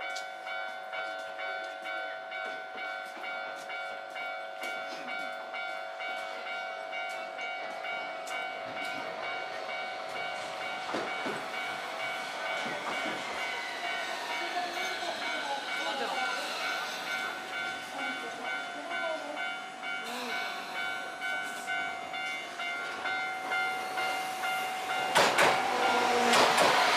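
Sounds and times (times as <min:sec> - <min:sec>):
level crossing bell ringing: 0:00.0 - 0:26.2
tram wheels and motor: 0:00.1 - 0:26.9.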